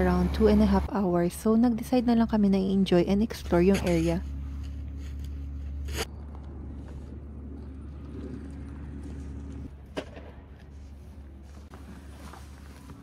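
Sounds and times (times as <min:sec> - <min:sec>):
low rumble: 0:00.0 - 0:10.6.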